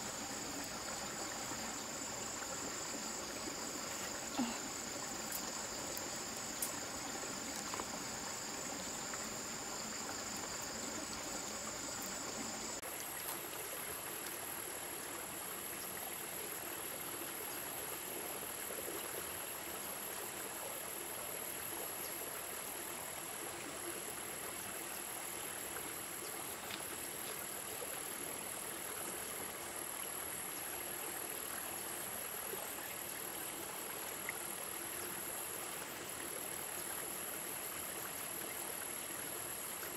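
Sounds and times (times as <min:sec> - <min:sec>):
insects trilling: 0:00.0 - 0:15.2
stream water flowing: 0:00.0 - 0:39.9.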